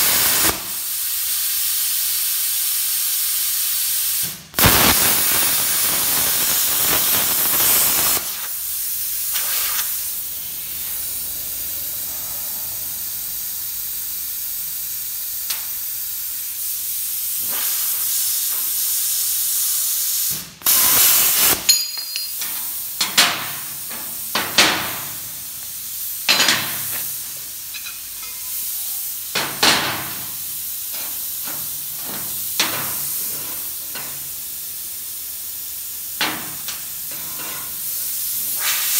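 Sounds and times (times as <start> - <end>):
plasma cutter hissing: 0.0 - 38.9
metal knocks and clinks: 21.7 - 22.6.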